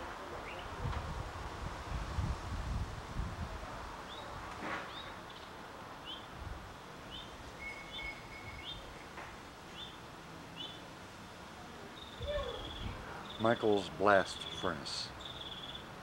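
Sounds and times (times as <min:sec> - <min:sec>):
faint outdoor hiss: 0:00.0 - 0:16.0
small bird chirping: 0:07.1 - 0:08.9, 0:10.6 - 0:10.8, 0:11.9 - 0:13.6, 0:15.2 - 0:15.9.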